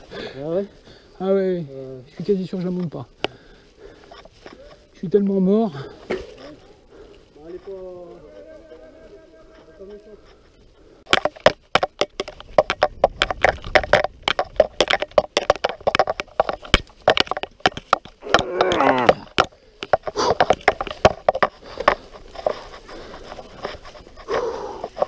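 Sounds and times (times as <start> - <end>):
mountain bike rattling over bumps: 11.0 - 25.0.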